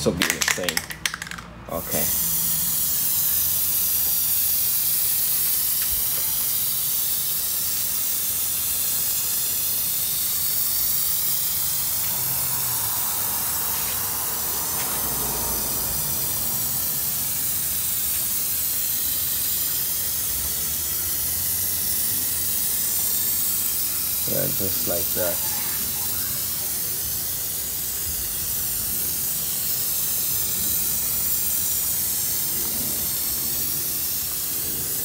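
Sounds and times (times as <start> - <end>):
aerosol can spraying: 0.3 - 35.0.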